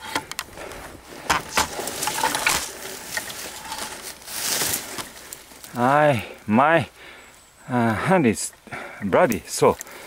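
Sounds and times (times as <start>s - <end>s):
rustling in dry leaves: 0.0s - 6.6s.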